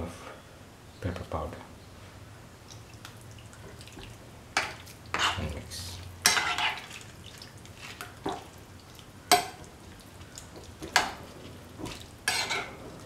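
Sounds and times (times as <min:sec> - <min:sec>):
spoon scraping cooking pot: 0:04.6 - 0:05.5, 0:06.2 - 0:07.0, 0:11.8 - 0:12.8.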